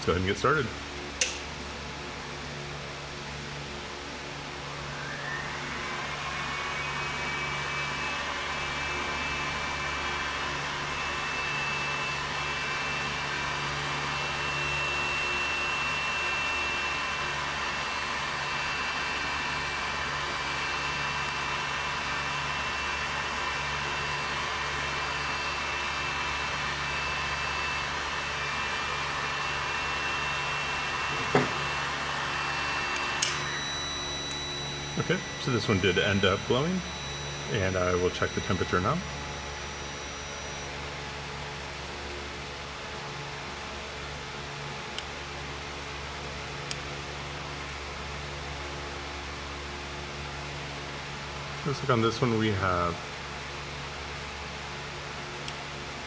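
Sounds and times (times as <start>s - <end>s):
cooling fans whining: 0.0s - 56.0s
sharp click: 1.2s - 1.4s, 32.9s - 33.4s.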